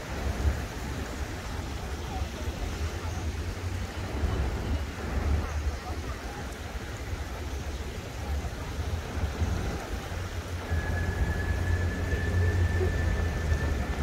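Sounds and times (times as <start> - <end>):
rushing hiss: 8.1 - 14.0
thin steady high tone: 10.5 - 14.0.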